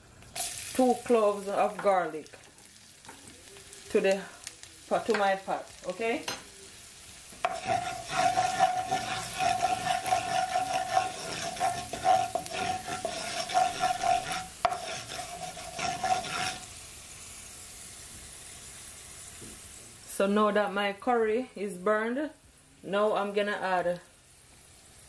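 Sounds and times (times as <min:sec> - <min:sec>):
hot oil sizzling: 0:00.0 - 0:20.7, 0:22.9 - 0:25.0
wooden spoon scraping wok: 0:07.3 - 0:16.8.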